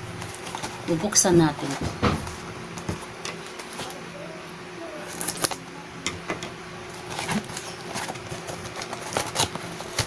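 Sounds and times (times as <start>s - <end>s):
packaging rustling and crinkling: 0.1s - 4.0s, 6.9s - 10.0s
packaging sharp crackles: 5.1s - 5.6s, 7.0s - 10.0s.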